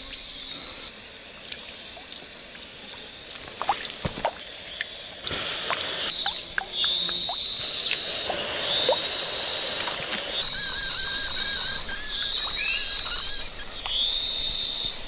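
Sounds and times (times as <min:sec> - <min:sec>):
high steady animal calls: 0:06.1 - 0:15.0
lower chirping call: 0:08.7 - 0:15.0.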